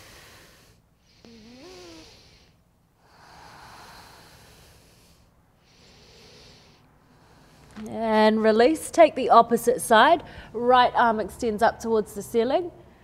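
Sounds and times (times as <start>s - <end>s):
woman breathing audibly: 0.0s - 7.8s, 10.2s - 10.6s.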